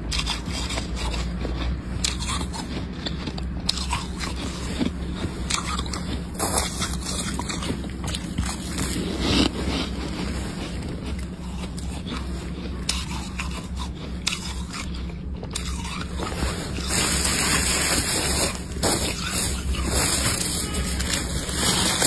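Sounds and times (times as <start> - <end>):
freezer frost crunching and scraping: 0.0 - 22.0.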